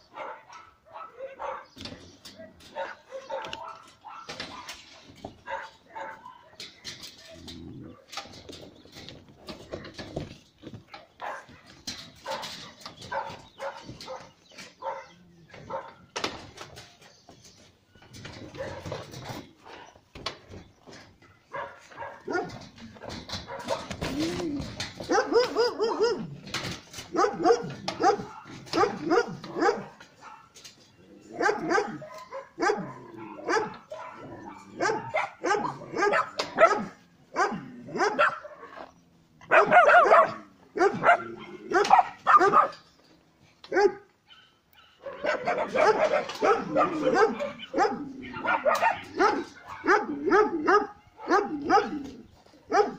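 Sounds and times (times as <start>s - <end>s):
dog barking: 0.1s - 1.8s, 2.7s - 4.8s, 5.4s - 6.6s, 11.2s - 16.0s, 21.5s - 23.9s, 25.0s - 26.3s, 27.1s - 30.6s, 31.4s - 38.9s, 39.5s - 42.8s, 43.7s - 52.1s, 52.7s - 52.9s.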